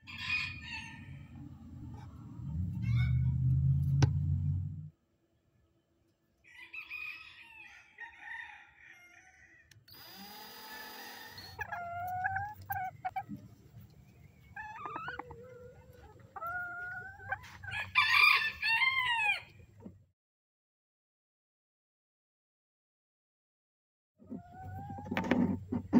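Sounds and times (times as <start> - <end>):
rooster crowing: 0.0 - 1.3, 2.8 - 3.4, 6.4 - 9.7, 17.7 - 19.5
chickens clucking: 11.2 - 19.9, 24.2 - 25.9.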